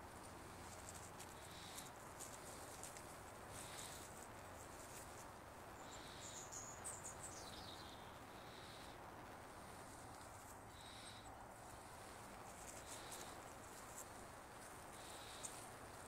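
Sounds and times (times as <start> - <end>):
background hiss: 0.0 - 16.0
bird chirps: 5.8 - 8.9.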